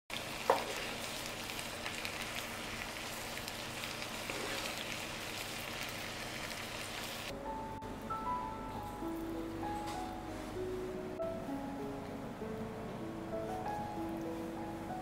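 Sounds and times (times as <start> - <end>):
sauce sizzling in a frying pan: 0.1 - 7.3
soft music with held notes: 7.3 - 15.0.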